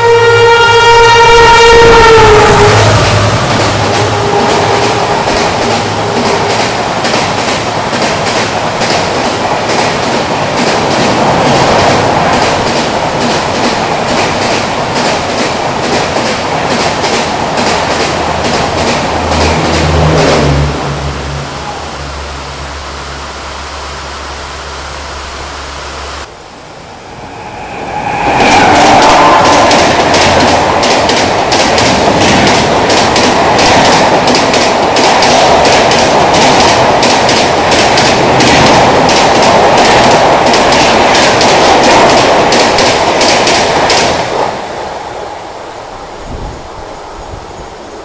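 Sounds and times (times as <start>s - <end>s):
train passing at speed: 0.0s - 48.0s
wheels clickety-clack over rail joints: 3.4s - 21.0s, 28.5s - 44.8s
heavy rain hissing: 18.1s - 31.0s.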